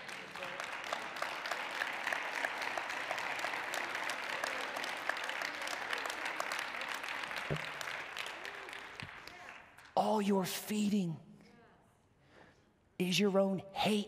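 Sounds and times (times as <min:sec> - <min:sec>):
crowd clapping: 0:00.0 - 0:10.1.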